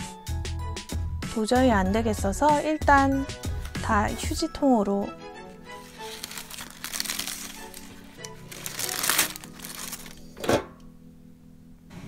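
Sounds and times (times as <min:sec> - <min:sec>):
background music: 0:00.0 - 0:11.9
paper crumpling and rustling: 0:03.5 - 0:04.4, 0:05.7 - 0:10.4.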